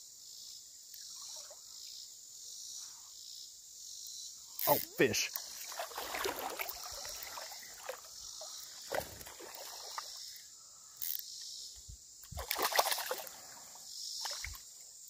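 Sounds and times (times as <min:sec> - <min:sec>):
water splashing: 0:04.7 - 0:10.2, 0:12.4 - 0:14.6
spinning reel reeling: 0:11.0 - 0:11.2.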